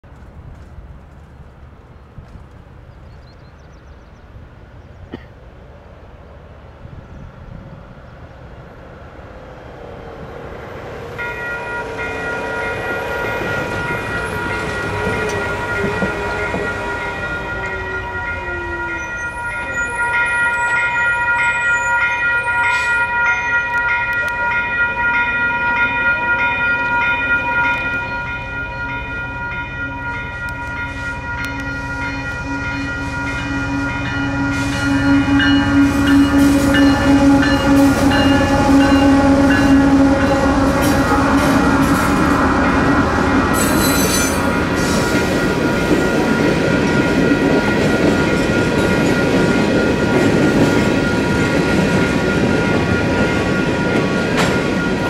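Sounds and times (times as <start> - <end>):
diesel locomotive rumbling: 0.0 - 55.0
electronic crossing bell ringing: 11.2 - 40.6, 43.6 - 55.0.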